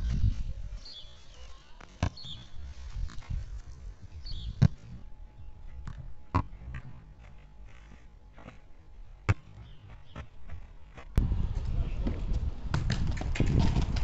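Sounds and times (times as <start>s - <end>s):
wind rumble on microphone: 0.0s - 1.0s, 2.2s - 6.8s, 11.2s - 14.0s.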